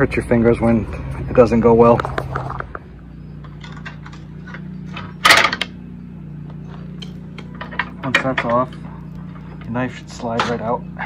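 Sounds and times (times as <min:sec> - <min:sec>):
steady low hum: 0:00.0 - 0:11.0
sharp metal clack: 0:03.4 - 0:05.8.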